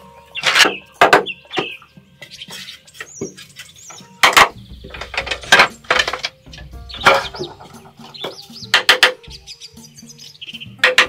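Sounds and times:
small birds chirping: 0:00.0 - 0:11.0
sharp knocks: 0:04.2 - 0:09.2.

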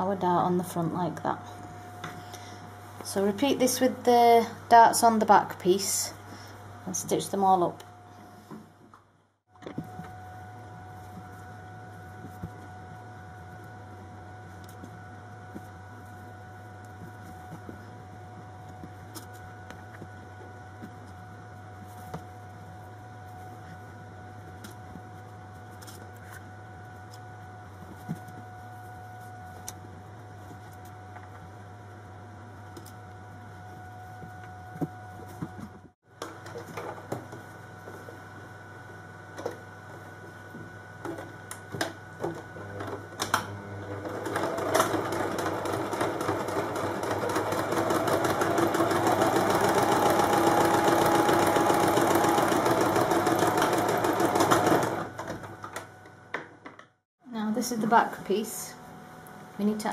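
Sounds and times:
sewing machine stitching: 0:42.6 - 0:55.5.

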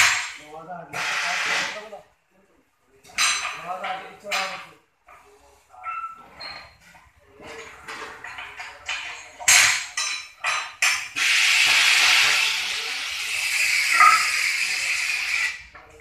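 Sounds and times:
loud hiss of escaping pressure: 0:00.0 - 0:01.8, 0:11.1 - 0:15.7
metal clinks and knocks: 0:05.8 - 0:11.1.

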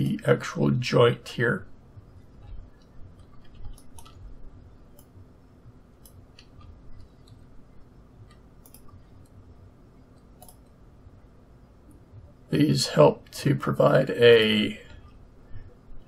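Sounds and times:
faint low hum: 0:00.0 - 0:16.0
mouse and keyboard clicks: 0:02.4 - 0:04.3, 0:06.0 - 0:07.4, 0:08.2 - 0:09.4, 0:10.2 - 0:10.8.

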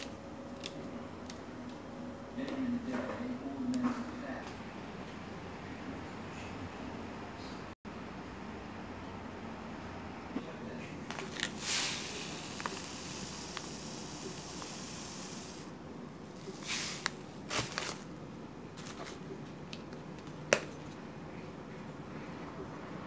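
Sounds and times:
rustling scraping hiss: 0:11.2 - 0:15.7, 0:16.4 - 0:18.0.

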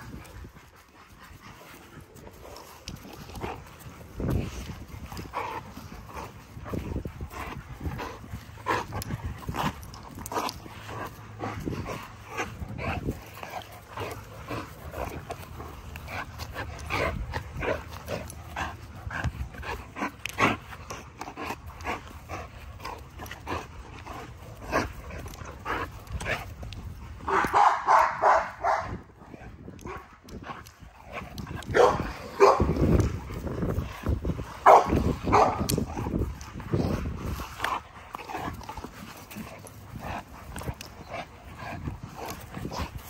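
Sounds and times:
dog barking: 0:27.5 - 0:28.9.

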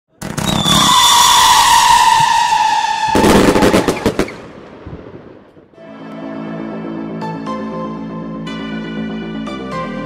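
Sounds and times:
whistling firework: 0:00.2 - 0:04.6
firework cracks and bangs: 0:00.2 - 0:05.6.

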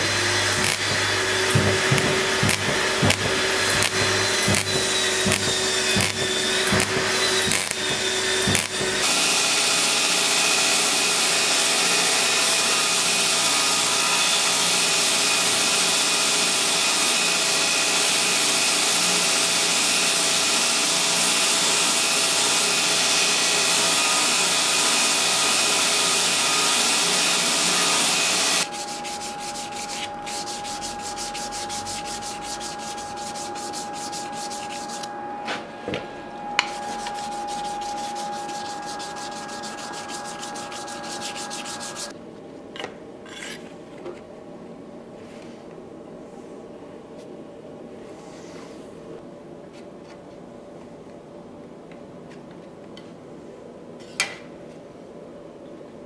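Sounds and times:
belt grinder grinding metal: 0:00.0 - 0:09.2, 0:36.7 - 0:42.1
hand rubbing metal: 0:00.5 - 0:09.0, 0:28.6 - 0:35.1, 0:36.6 - 0:42.1.

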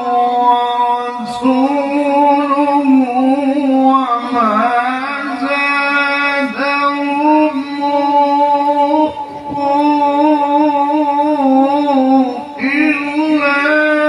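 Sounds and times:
man chanting into a microphone: 0:00.0 - 0:14.0.

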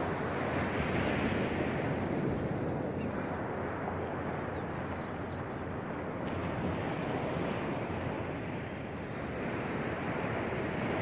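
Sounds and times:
waves washing up a beach: 0:00.0 - 0:11.0.

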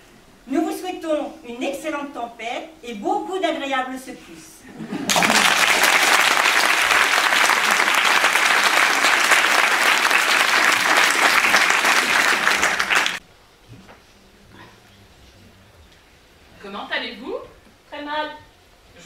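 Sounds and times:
audience applauding: 0:05.1 - 0:13.2.

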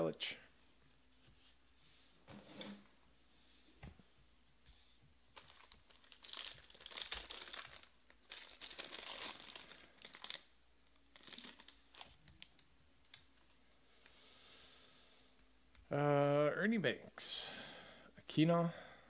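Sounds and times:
foil wrapper crinkling and tearing: 0:05.4 - 0:13.2.

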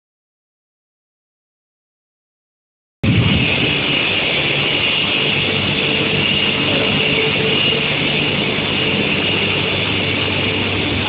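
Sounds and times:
high-pitched machine whine: 0:03.0 - 0:11.0
low hum: 0:03.0 - 0:11.0.

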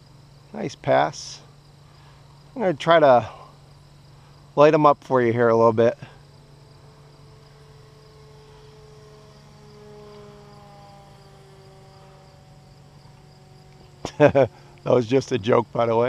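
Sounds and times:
crickets chirping: 0:00.0 - 0:16.0
model plane motor whine: 0:05.3 - 0:16.0.

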